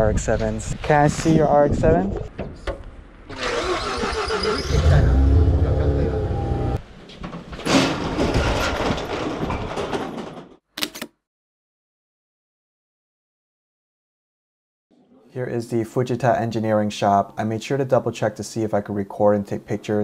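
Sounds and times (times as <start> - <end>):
sliding garage door opening: 3.3 - 5.0, 6.8 - 10.6.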